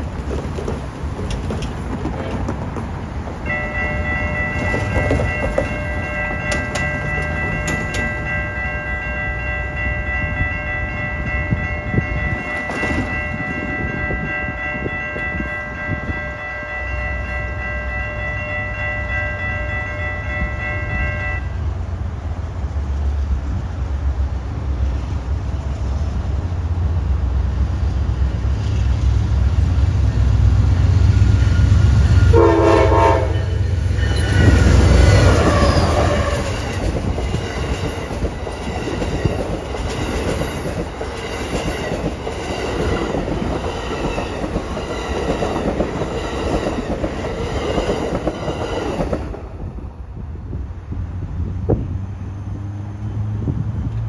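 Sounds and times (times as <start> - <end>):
locomotive air horn chord: 3.4 - 21.6, 32.3 - 33.7.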